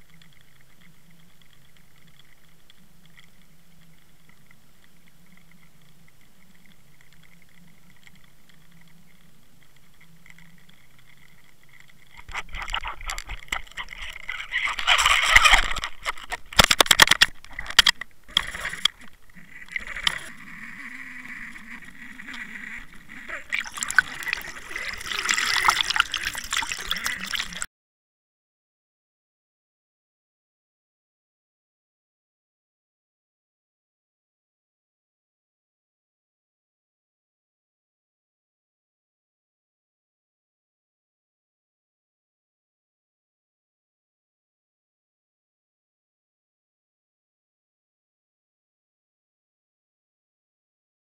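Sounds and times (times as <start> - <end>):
boat motor hum underwater: 0.0 - 27.7
water sloshing and gurgling: 0.1 - 27.7.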